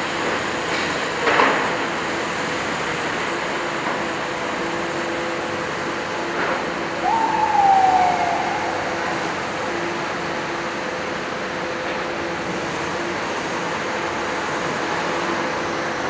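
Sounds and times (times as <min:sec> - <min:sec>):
short falling whine: 0:07.0 - 0:10.6.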